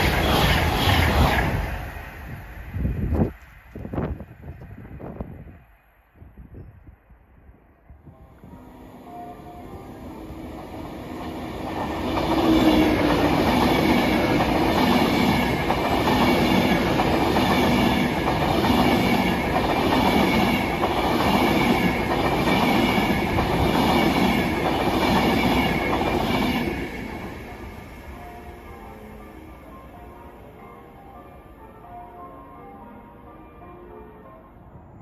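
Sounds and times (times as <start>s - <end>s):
train wheel noise: 0.0s - 5.5s, 8.4s - 29.4s
electric train passing at speed: 0.0s - 35.0s.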